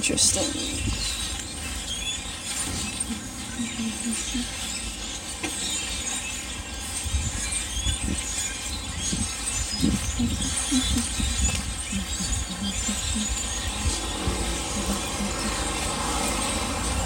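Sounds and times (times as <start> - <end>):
flock of birds chirping: 0.0 - 17.0
wind rumbling on microphone: 0.0 - 17.0.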